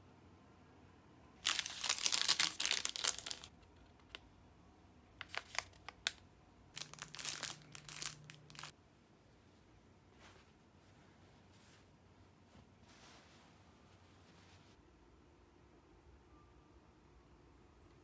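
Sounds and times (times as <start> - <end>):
faint low hum: 0.0 - 18.0
wrapping crinkling: 1.4 - 4.2, 5.2 - 6.2, 6.8 - 8.7.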